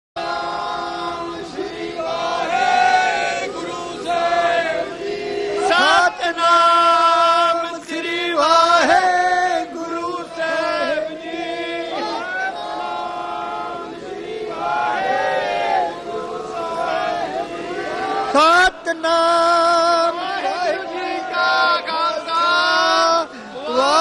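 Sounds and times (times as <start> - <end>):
men chanting together: 0.2 - 24.0.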